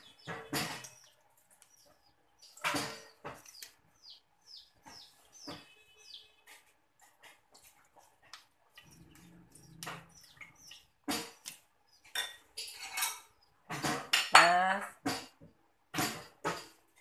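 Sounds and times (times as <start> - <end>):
metal spoon clinking on bowls: 12.1 - 13.5.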